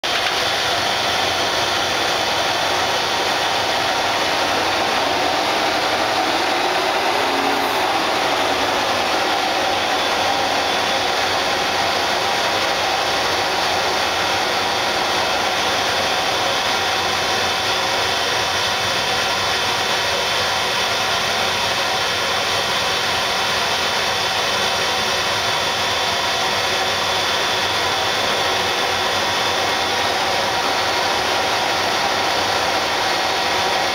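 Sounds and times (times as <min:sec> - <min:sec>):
lathe motor whirring: 0:00.1 - 0:21.4.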